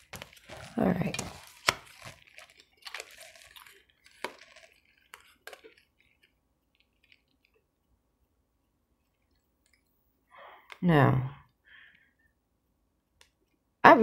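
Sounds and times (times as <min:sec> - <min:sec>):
cards tapping and rustling: 0:00.0 - 0:07.5.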